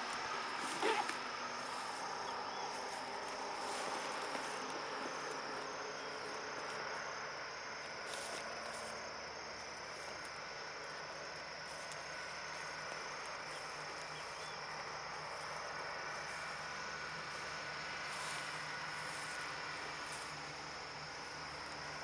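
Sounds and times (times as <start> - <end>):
insects chirring: 0.0 - 22.0.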